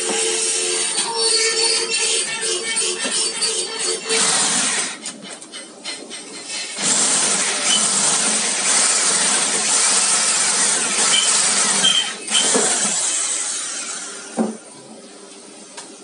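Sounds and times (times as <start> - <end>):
electric drill boring through metal: 0.0 - 5.0, 6.6 - 14.3.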